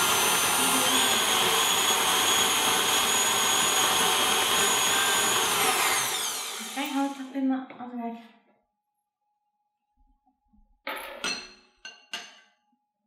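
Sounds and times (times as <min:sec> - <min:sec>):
stand mixer motor whine: 0:00.0 - 0:07.2.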